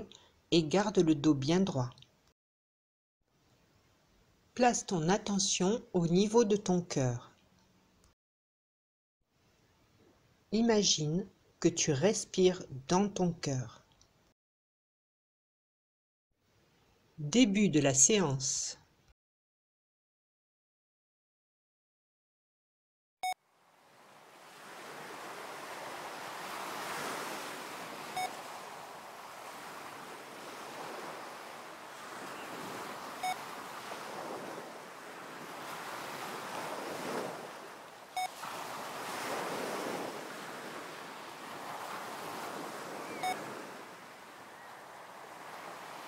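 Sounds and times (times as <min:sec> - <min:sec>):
sea waves washing on shore: 0:23.6 - 0:46.0
short beeps: 0:28.1 - 0:28.4, 0:33.2 - 0:33.5, 0:43.0 - 0:43.5.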